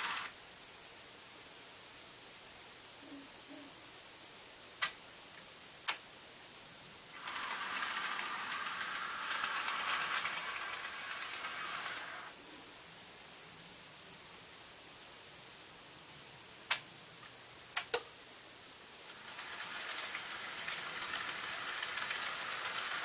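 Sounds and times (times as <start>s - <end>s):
model train motor whirring: 0.0s - 0.3s, 7.1s - 12.4s, 19.1s - 23.0s.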